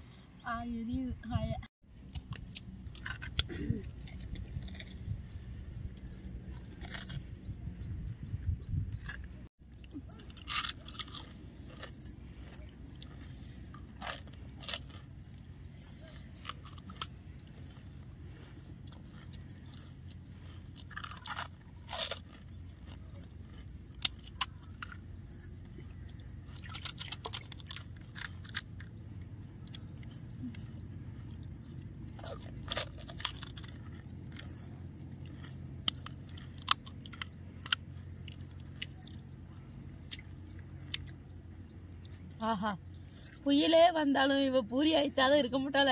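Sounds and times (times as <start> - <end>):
steady low hum: 0.0 - 45.9
crunchy food being chewed: 1.8 - 43.5.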